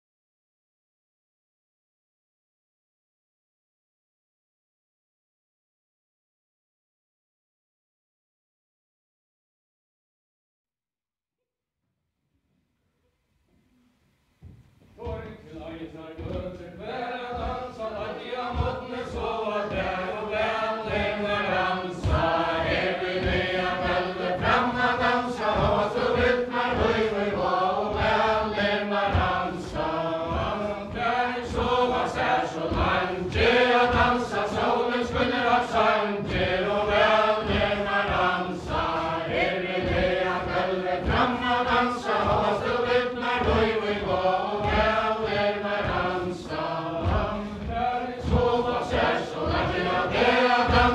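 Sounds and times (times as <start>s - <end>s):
dancers' feet on wooden floor: 14.3s - 50.9s
group singing unaccompanied: 15.0s - 50.9s.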